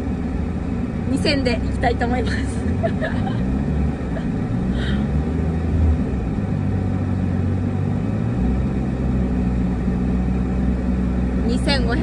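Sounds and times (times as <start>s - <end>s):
car engine revving at steady speed: 0.0s - 12.0s.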